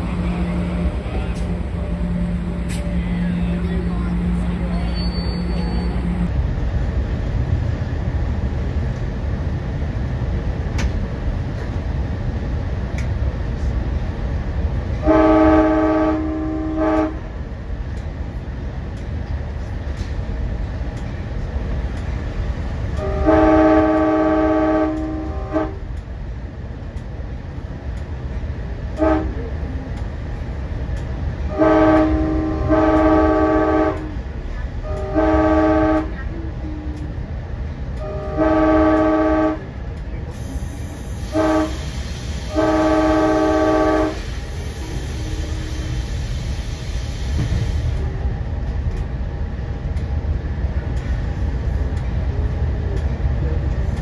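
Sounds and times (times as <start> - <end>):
locomotive air horn blasts: 0.0 - 6.3, 15.0 - 17.4, 22.9 - 25.9, 29.0 - 29.4, 31.4 - 34.2, 34.8 - 37.0, 38.0 - 39.8, 40.4 - 46.0
train rumbling: 0.0 - 54.0.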